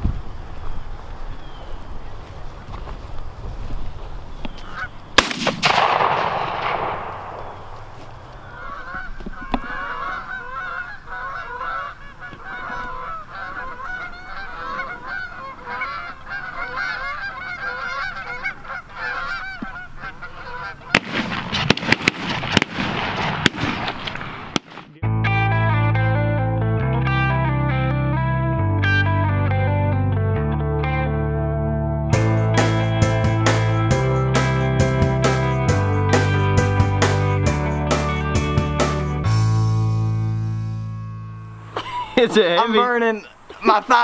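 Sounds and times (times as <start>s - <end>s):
geese honking: 4.5s - 25.0s, 41.4s - 44.0s
shotgun shot with echo: 5.2s - 8.0s, 20.9s - 24.9s.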